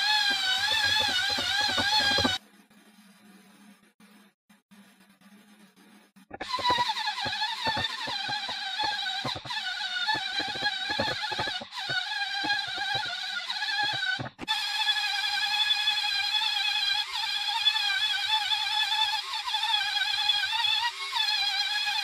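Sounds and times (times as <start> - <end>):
belt sander sanding wood: 0.0 - 2.4, 6.3 - 14.8.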